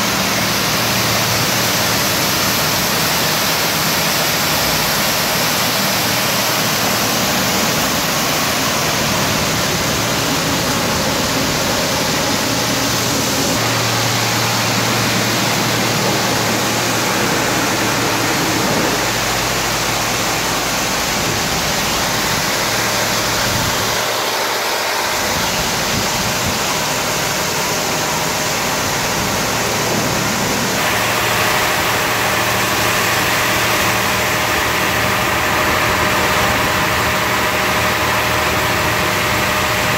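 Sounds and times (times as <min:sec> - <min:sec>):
high-pressure water spray hissing: 0:00.0 - 0:39.9
low machine hum: 0:00.0 - 0:39.9.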